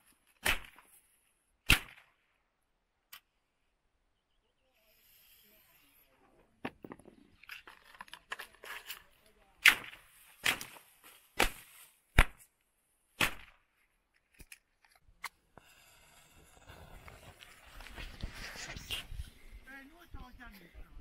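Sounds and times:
firecracker bangs and pops: 0:00.4 - 0:00.9, 0:01.6 - 0:02.2, 0:09.6 - 0:12.5, 0:13.2 - 0:13.7.

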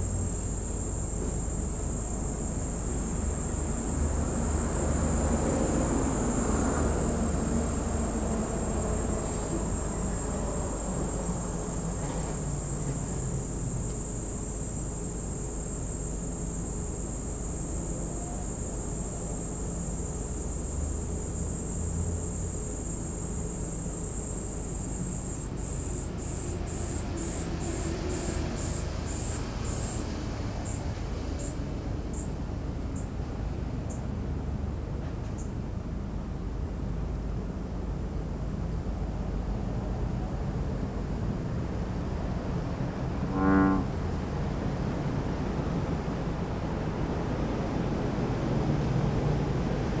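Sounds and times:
insect buzzing trill: 0:00.0 - 0:32.3, 0:43.3 - 0:44.0.

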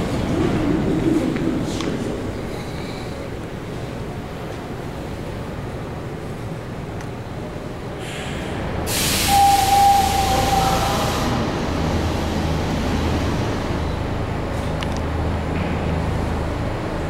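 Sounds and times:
subway car humming: 0:00.0 - 0:17.0
loud air hiss: 0:08.0 - 0:11.5
steady high tone: 0:09.3 - 0:11.4.

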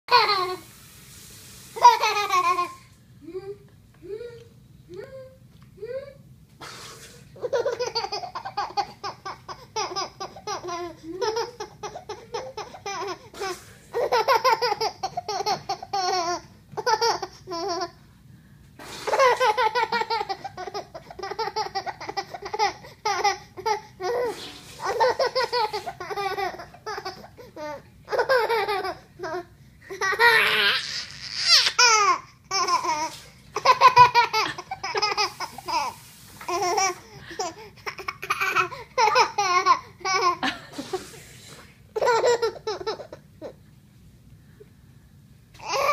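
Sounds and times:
baby laughing: 0:00.1 - 0:00.6, 0:01.8 - 0:02.8, 0:07.4 - 0:18.0, 0:19.0 - 0:41.0, 0:41.9 - 0:43.6, 0:45.6 - 0:45.9.

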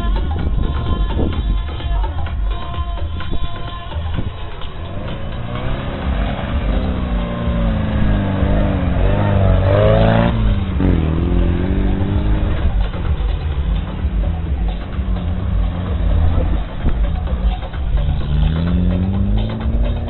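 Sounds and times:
car engine revving hard: 0:04.5 - 0:20.0.

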